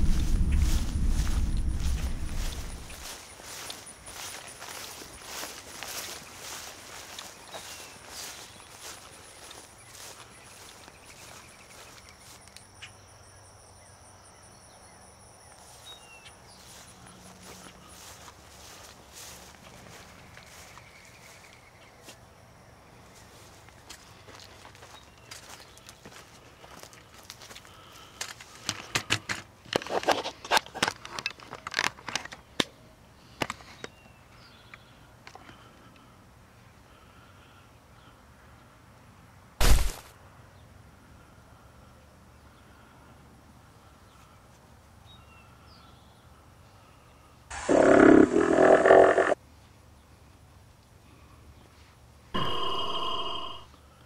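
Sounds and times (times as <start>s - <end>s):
rustling corn leaves: 0.0s - 12.4s, 16.6s - 20.8s
steps through dry vegetation: 0.0s - 12.5s, 15.6s - 22.2s, 23.1s - 28.7s
insects trilling: 0.0s - 19.3s
faint high chirps: 52.4s - 53.7s
thin high whine: 52.4s - 53.7s.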